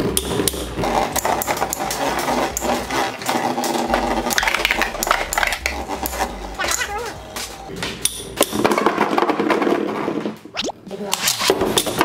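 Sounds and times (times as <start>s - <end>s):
spinning tops whirring: 0.3s - 7.7s.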